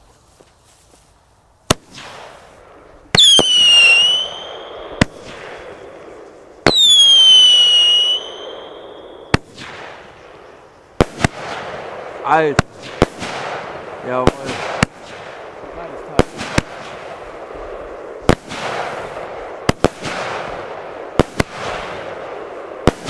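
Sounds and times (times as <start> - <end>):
firework bangs: 1.6 - 23.0
firework whistle falling in pitch: 3.2 - 4.8, 6.7 - 9.2.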